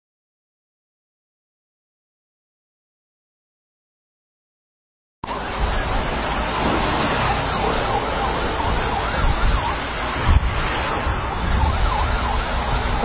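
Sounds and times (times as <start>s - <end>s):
emergency siren wailing: 5.2s - 13.0s
loud steady rumbling: 5.2s - 13.0s.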